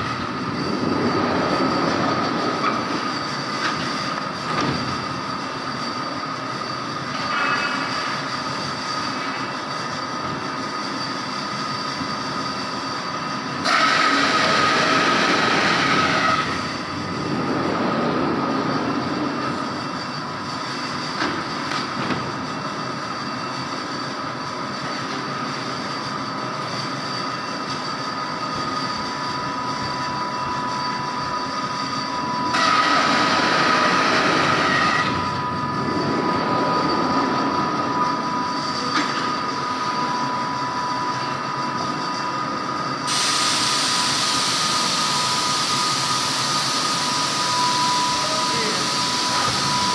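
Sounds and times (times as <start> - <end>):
thin machine whine: 0.0 - 49.9
foam cutting machine running: 13.6 - 20.4, 27.4 - 49.9.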